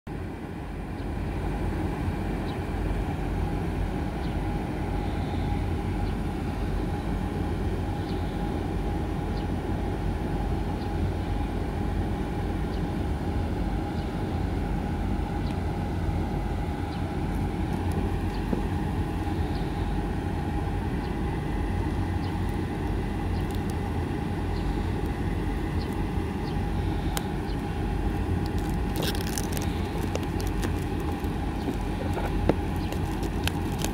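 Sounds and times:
mid-pitched hum: 0.1 - 33.9
low rumble: 14.1 - 33.9
plastic shrink-wrap tearing: 28.1 - 33.9.

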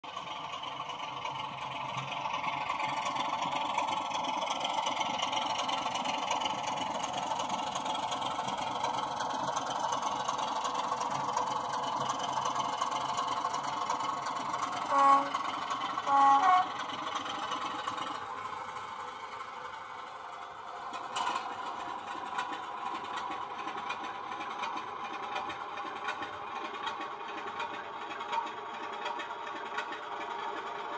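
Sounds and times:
diesel engine running through small speaker: 0.0 - 30.9
train horn blasts: 14.8 - 16.8.

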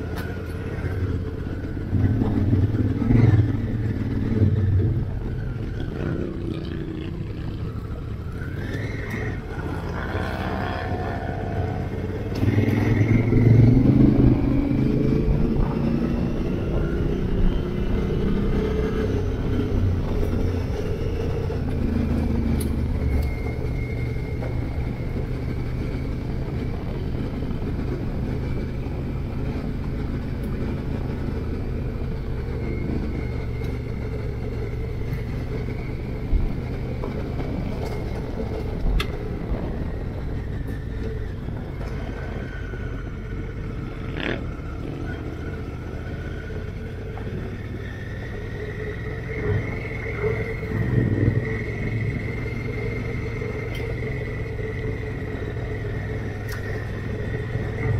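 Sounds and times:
motorcycle engine running: 0.0 - 57.9
wind noise on microphone: 11.0 - 44.8.

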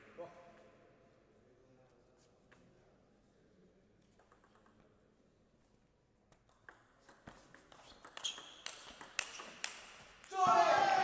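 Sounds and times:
table tennis ball clicking: 6.4 - 9.8.

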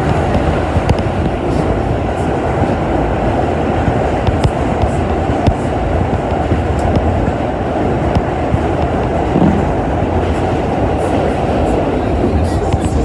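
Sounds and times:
subway train rumbling: 0.0 - 13.0.

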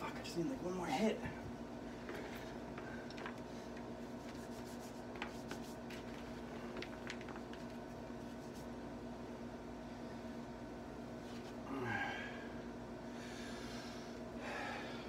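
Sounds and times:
steady low hum: 0.0 - 15.0
hands rubbing in chalk: 4.1 - 6.2, 8.2 - 8.8.

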